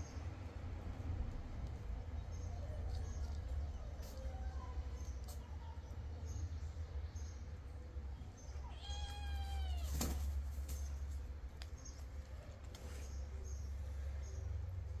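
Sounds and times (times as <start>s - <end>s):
cat meowing: 8.6s - 10.0s.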